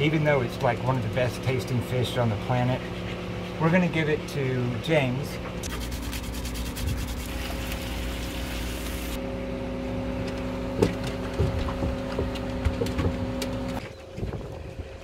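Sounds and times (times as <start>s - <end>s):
machine hum: 0.0s - 14.7s
knocks and thumps: 10.8s - 13.4s.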